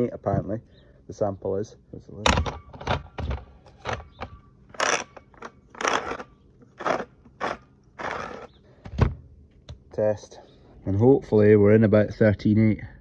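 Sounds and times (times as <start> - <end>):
grain grinding in meter cap: 4.7 - 8.6.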